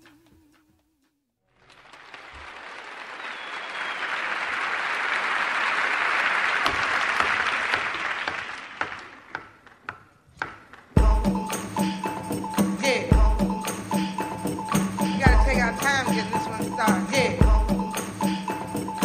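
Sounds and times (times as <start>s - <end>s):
audience applause: 1.5s - 9.3s
single claps: 1.6s - 9.8s.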